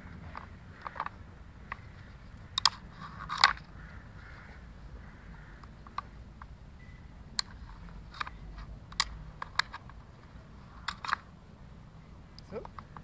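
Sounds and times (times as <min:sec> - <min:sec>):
wooden puzzle toy clicking: 0:07.4 - 0:10.0, 0:10.8 - 0:11.3, 0:12.4 - 0:13.0.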